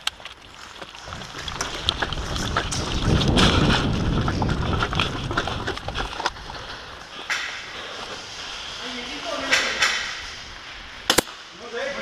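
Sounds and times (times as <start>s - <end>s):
footsteps: 0.0s - 11.5s
wind buffeting microphone: 1.0s - 7.3s.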